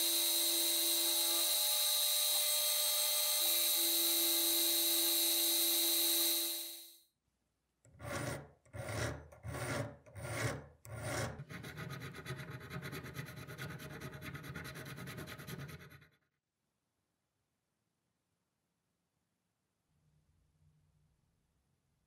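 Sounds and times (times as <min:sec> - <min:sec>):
milling cutter whine: 0:00.0 - 0:06.9
hand file rasping on brass: 0:07.9 - 0:16.2.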